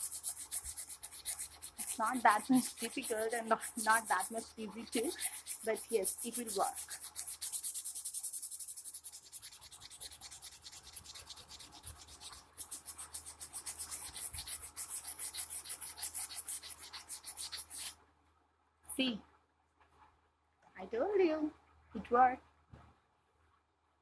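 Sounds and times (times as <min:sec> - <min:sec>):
sandpaper scratching ceramic mug: 0:00.0 - 0:18.0.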